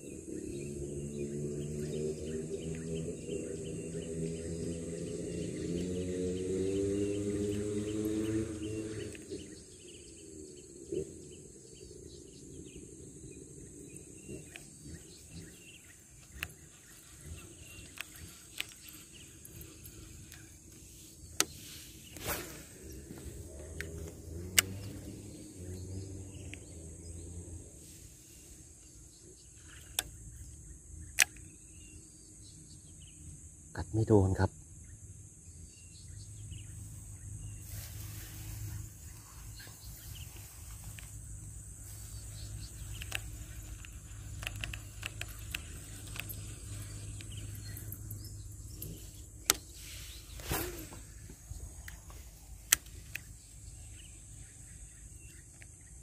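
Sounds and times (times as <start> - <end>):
distant motor humming: 0.0 - 28.5
high insect drone: 0.0 - 56.0
fishing gear clicks and handling: 16.2 - 21.6, 42.2 - 49.8
sharp clicks: 23.7 - 25.1, 31.1 - 31.6, 42.4 - 48.0
sharp click: 31.1 - 31.5
brief rustle: 48.7 - 53.3.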